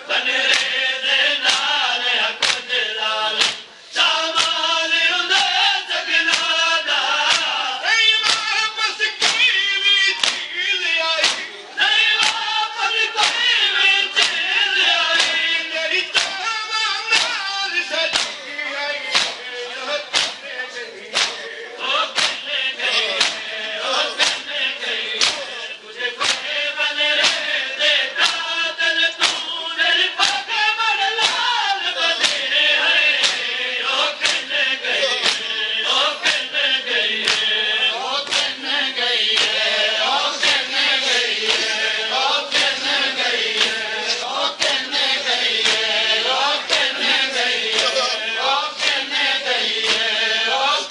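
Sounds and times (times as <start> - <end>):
men chanting in chorus: 0.0 - 50.9
rhythmic chest-beating slaps: 0.0 - 50.9.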